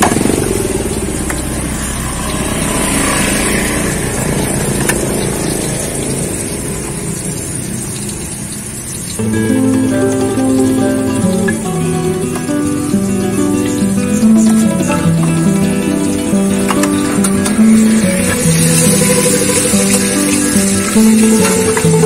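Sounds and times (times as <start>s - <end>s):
acoustic guitar music: 0.0s - 7.4s, 8.9s - 22.0s
vehicle engine running: 0.0s - 22.0s.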